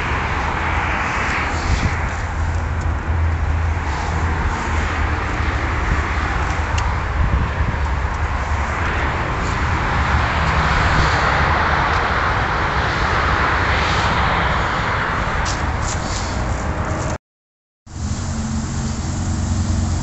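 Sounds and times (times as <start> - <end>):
car engine idling: 17.9 - 20.0.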